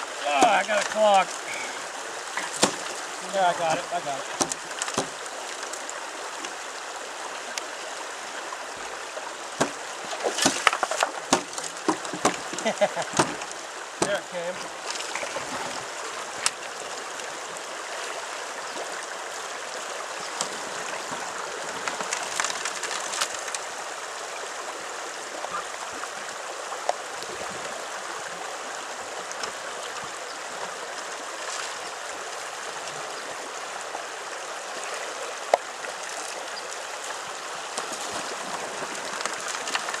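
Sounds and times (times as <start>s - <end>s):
river running over rocks: 0.0s - 40.0s
sharp knocks: 2.4s - 2.9s, 4.4s - 5.2s, 9.6s - 9.8s, 10.4s - 13.4s.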